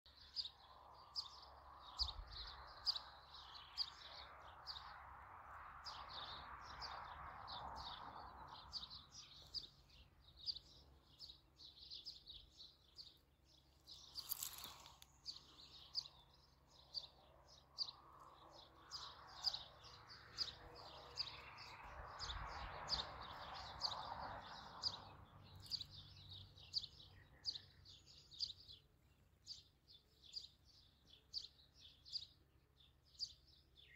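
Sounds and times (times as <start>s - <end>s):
small birds chirping: 0.1s - 33.9s.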